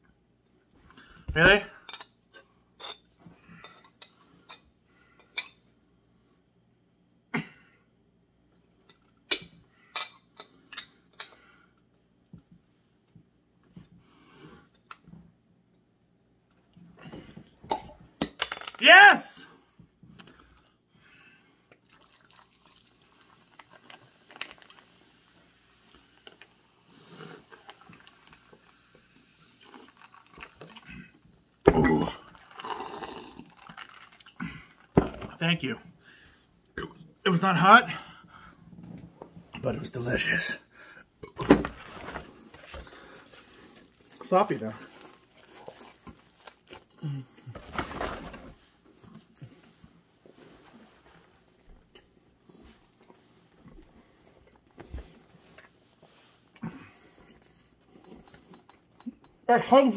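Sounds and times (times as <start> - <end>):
liquid pouring over ice: 21.8 - 24.9, 29.6 - 31.0, 32.2 - 34.4.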